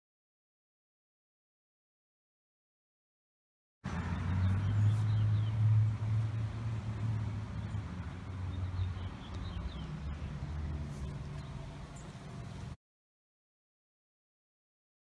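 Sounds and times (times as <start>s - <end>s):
vehicle engine hum: 3.8s - 12.8s.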